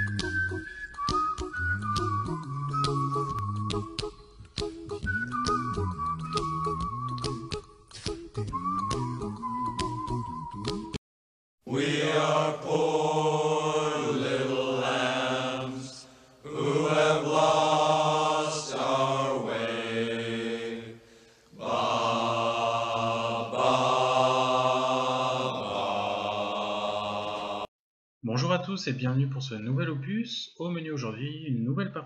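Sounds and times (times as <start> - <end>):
chanted vocal music: 11.7 - 27.7.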